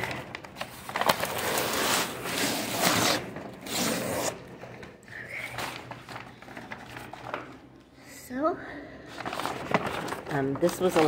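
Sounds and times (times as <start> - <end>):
paper ripping: 0.5 - 4.5.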